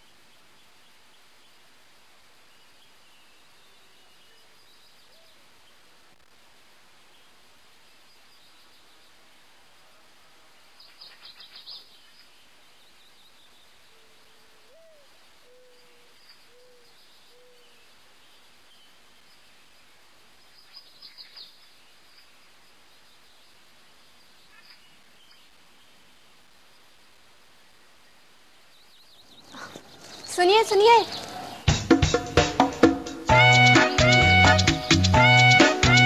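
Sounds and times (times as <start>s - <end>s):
faint steady hiss: 0.0s - 36.0s
lower bird call: 10.8s - 19.0s.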